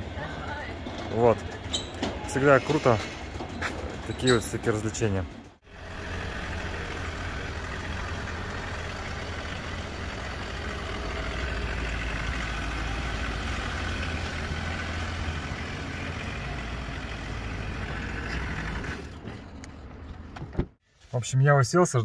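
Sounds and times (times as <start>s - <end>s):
car engine idling: 5.5s - 20.3s.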